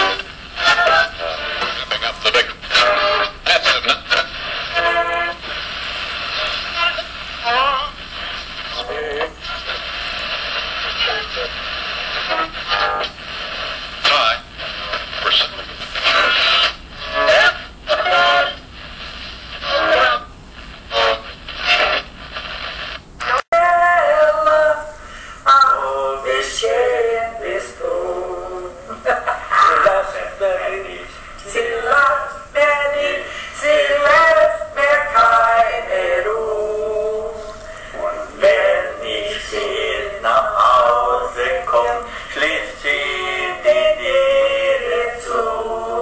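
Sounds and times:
radio tuning across stations: 0:00.0 - 0:46.0
person singing: 0:23.2 - 0:46.0.

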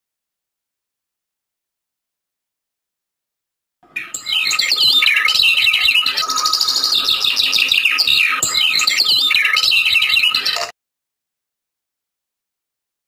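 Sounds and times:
small birds chirping: 0:03.8 - 0:10.7.

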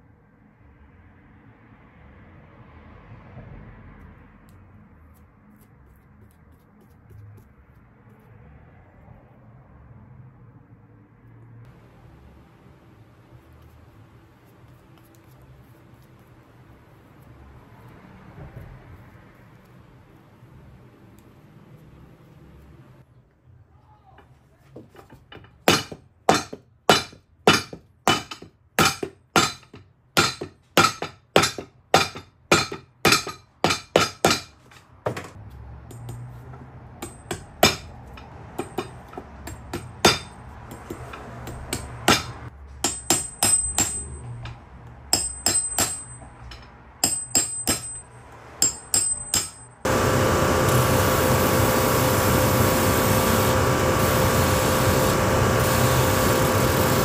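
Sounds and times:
machine whirring: 0:49.9 - 0:57.0.

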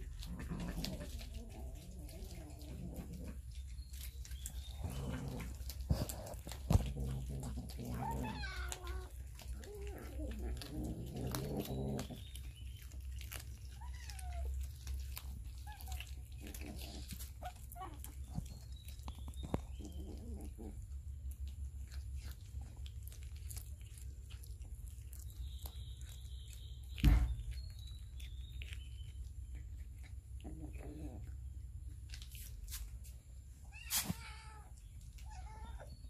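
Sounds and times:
cat growling: 0:00.0 - 0:19.0, 0:19.6 - 0:21.0, 0:30.4 - 0:31.4
cats chewing raw fish: 0:00.0 - 0:36.0
cat cries: 0:07.8 - 0:10.4, 0:33.6 - 0:35.9.

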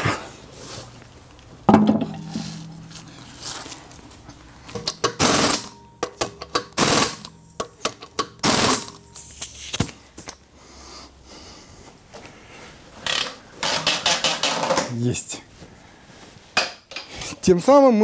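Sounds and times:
pneumatic impact wrench: 0:05.0 - 0:05.8, 0:06.5 - 0:07.3, 0:08.4 - 0:09.8.

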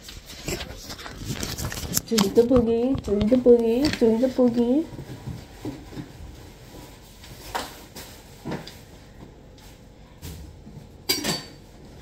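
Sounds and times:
kitchen clatter at counter: 0:11.0 - 0:11.8.

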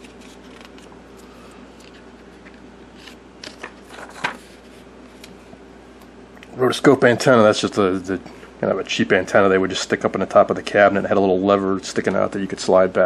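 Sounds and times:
paper page rustling: 0:00.0 - 0:05.4
faint steady hum: 0:00.0 - 0:13.0.

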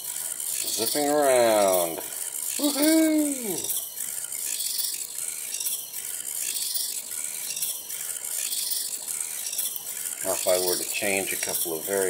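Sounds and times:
small servos whirring: 0:00.0 - 0:12.0.

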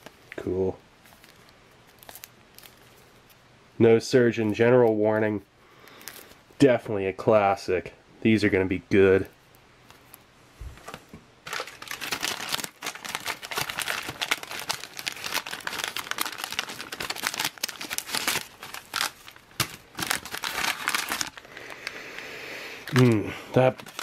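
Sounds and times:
plastic wrapper crinkling: 0:00.0 - 0:03.4, 0:10.8 - 0:24.0.

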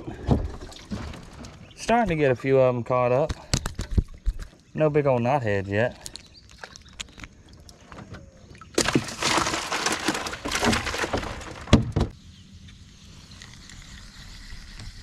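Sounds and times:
fish splashing and rattling in cooler: 0:00.1 - 0:01.9, 0:06.6 - 0:12.2.

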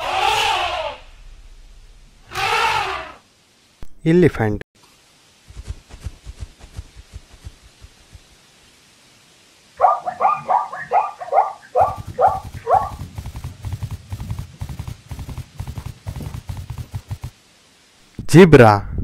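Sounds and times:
zebra barking: 0:00.0 - 0:01.1, 0:02.3 - 0:03.2, 0:09.8 - 0:13.0
rapid low thuds: 0:05.4 - 0:08.4, 0:11.8 - 0:17.4.

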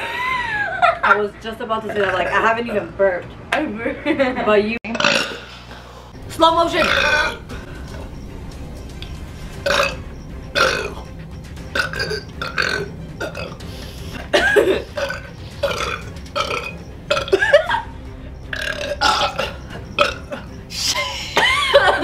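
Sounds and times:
women burping: 0:04.9 - 0:05.6, 0:06.8 - 0:07.4, 0:14.2 - 0:17.9, 0:18.5 - 0:21.9.

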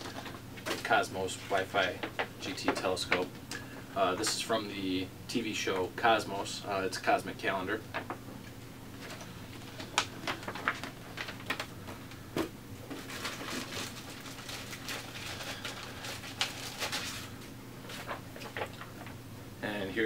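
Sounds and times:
paper rustling and crinkling: 0:09.0 - 0:12.1, 0:12.8 - 0:19.2.

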